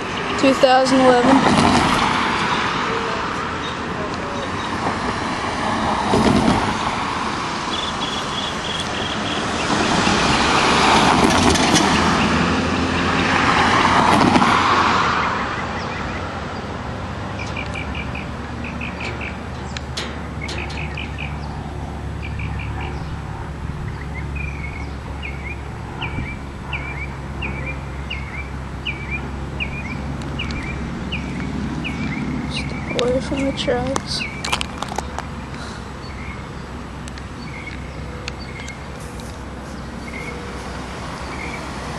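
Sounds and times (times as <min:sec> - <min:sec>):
diesel locomotive engine drone: 0:00.0 - 0:41.9
high bird chirps: 0:07.7 - 0:09.8, 0:17.4 - 0:23.3, 0:39.7 - 0:41.7.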